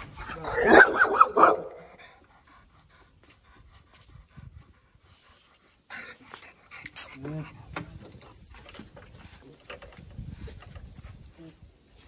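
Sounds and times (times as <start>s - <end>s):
dog barking: 0.4s - 1.9s.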